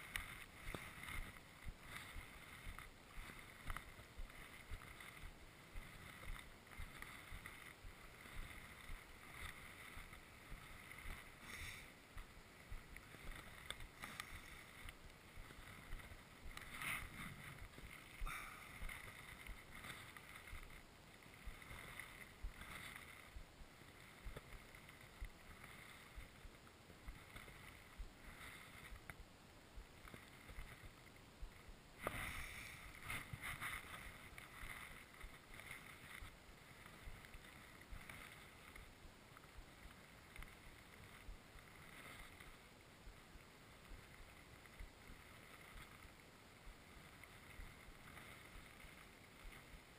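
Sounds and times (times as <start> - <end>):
footsteps crunching in snow: 0.0 - 29.2.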